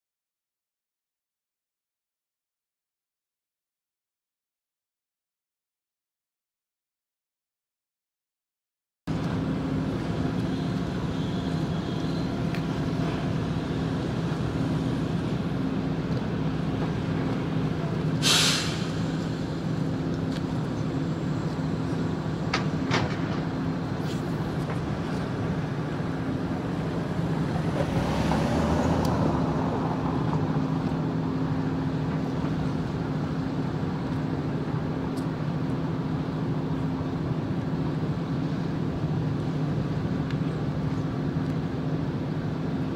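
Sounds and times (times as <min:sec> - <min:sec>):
low mechanical hum: 0:09.1 - 0:18.2
short loud hiss: 0:18.2 - 0:19.1.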